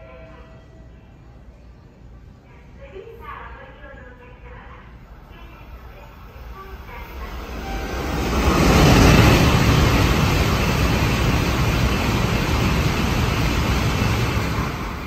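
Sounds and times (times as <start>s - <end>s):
high-speed train rushing past: 4.8s - 15.0s.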